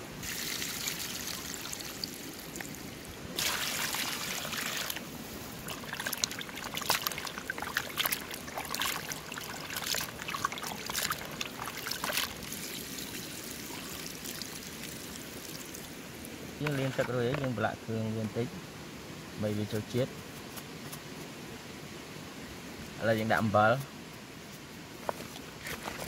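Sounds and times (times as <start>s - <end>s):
water poured onto grass: 0.2s - 2.8s, 3.4s - 16.0s, 16.6s - 17.6s
hands scrubbing in water: 5.6s - 12.6s.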